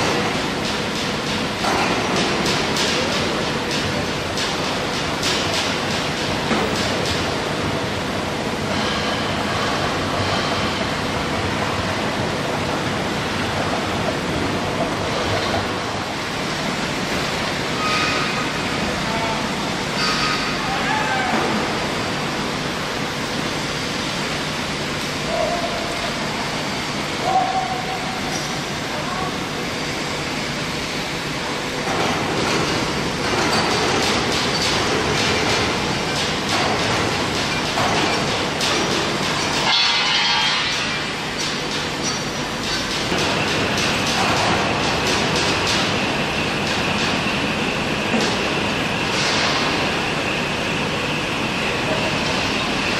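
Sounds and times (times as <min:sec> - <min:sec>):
foundry noise: 0:31.8 - 0:50.1.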